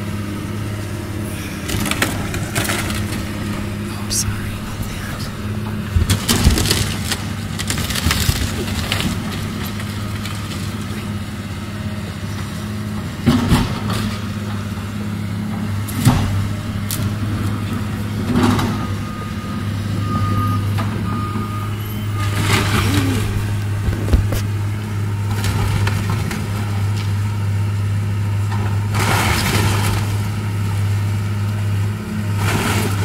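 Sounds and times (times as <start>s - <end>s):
excavator diesel engine running: 0.0s - 33.0s
timbers crashing and cracking: 1.7s - 3.6s, 6.0s - 10.9s.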